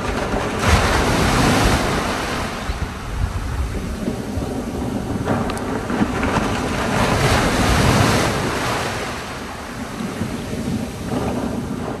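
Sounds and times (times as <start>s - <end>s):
sea water washing: 0.0s - 12.0s
wind buffeting microphone: 0.0s - 12.0s.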